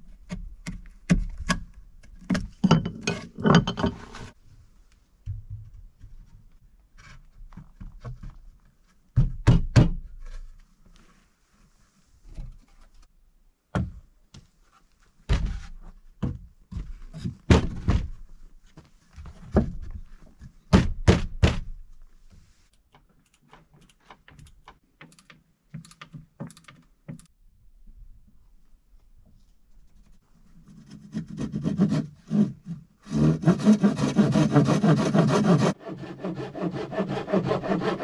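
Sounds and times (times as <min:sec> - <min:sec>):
wooden thunks and knocks: 0:05.2 - 0:06.4, 0:09.1 - 0:10.2, 0:13.7 - 0:14.1, 0:15.3 - 0:18.3, 0:19.2 - 0:21.8.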